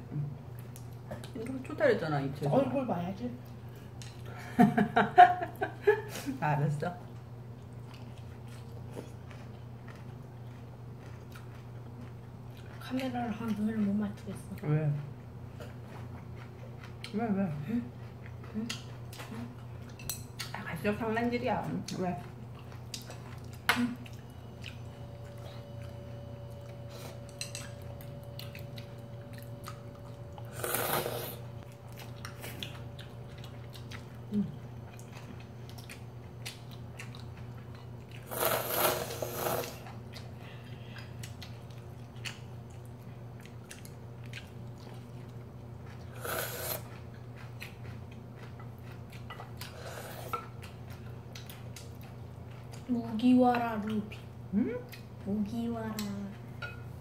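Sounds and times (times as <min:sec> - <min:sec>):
steady low hum: 0:00.0 - 0:57.0
chewing: 0:07.5 - 0:20.6, 0:21.8 - 0:56.3
noodles slurped: 0:30.5 - 0:31.4, 0:38.2 - 0:39.9, 0:46.0 - 0:47.0.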